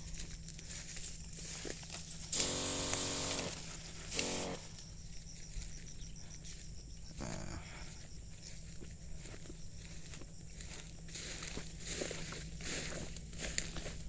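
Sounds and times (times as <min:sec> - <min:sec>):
sprayer pump humming: 0:01.4 - 0:05.2
spray hissing: 0:02.4 - 0:04.7.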